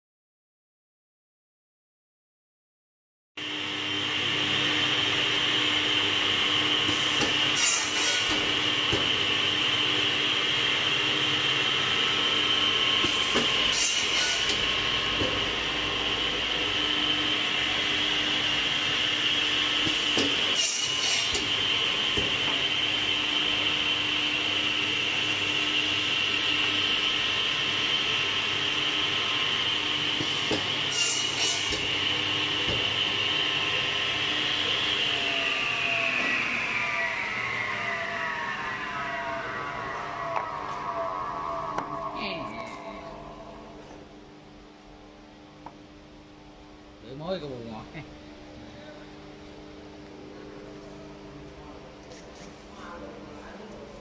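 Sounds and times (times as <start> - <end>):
saw running with steady whine: 3.4 - 45.7
saw blade cutting wood: 7.6 - 8.4, 13.1 - 14.6, 19.8 - 21.5, 30.9 - 31.8.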